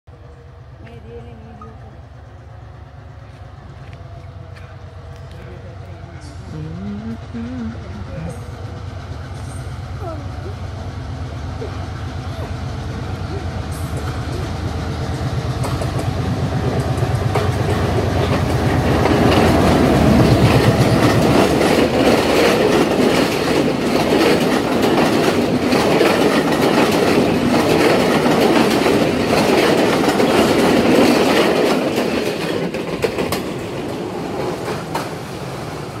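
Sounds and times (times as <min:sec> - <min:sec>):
diesel locomotive engine throbbing: 0:00.1 - 0:36.0
train wheels clickety-clack: 0:11.6 - 0:36.0.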